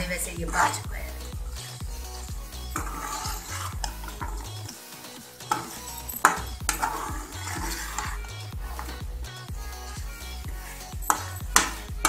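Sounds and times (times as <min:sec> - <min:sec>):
metal spatula scraping pan: 0:02.8 - 0:09.0.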